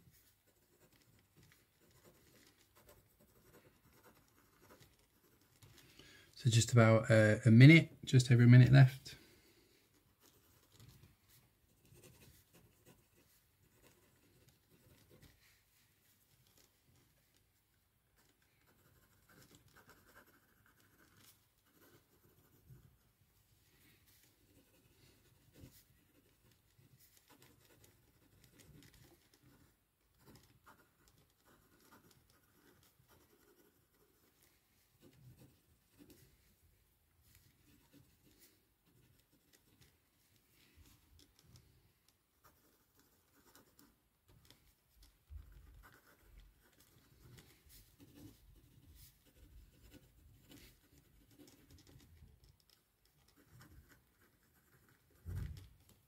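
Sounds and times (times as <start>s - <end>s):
pen scratching on paper: 0.0s - 5.7s, 11.7s - 15.4s, 18.2s - 23.0s, 24.2s - 34.4s, 42.4s - 44.6s, 45.4s - 56.0s.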